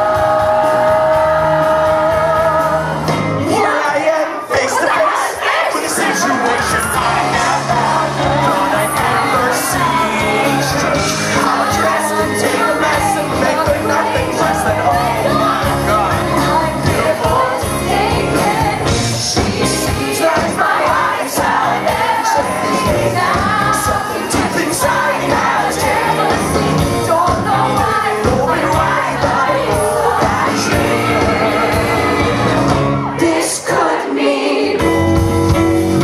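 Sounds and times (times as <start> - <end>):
audience: 0.0 - 36.0
live pop-rock band: 0.0 - 36.0
man singing: 5.8 - 17.5, 23.8 - 32.4.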